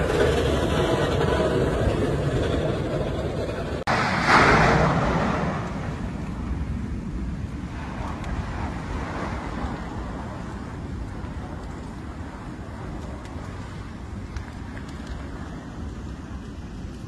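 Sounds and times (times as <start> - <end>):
faint cracks of burning lava: 0.0 - 17.0
volcanic eruption rumble: 0.0 - 17.0
wind on microphone: 0.0 - 17.0.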